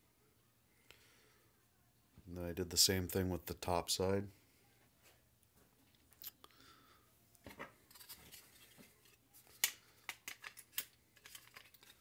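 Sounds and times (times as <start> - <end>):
plastic goggles being handled: 7.4 - 12.0.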